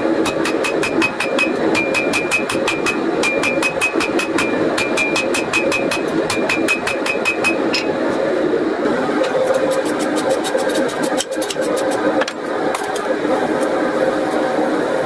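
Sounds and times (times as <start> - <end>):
hammer striking steel on anvil: 0.2 - 7.9.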